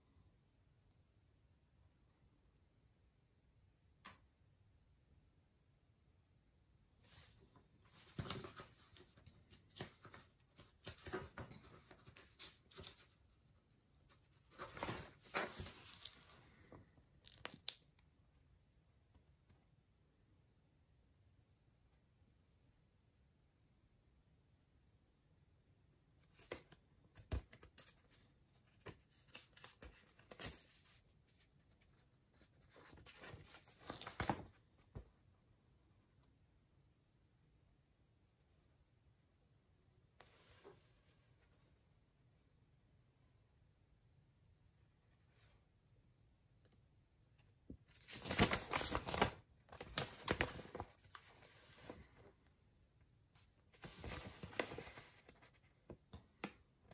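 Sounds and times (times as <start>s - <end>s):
paper rustling and crinkling: 7.1s - 13.2s, 14.1s - 16.6s, 26.3s - 34.6s, 47.9s - 52.3s, 53.7s - 55.6s.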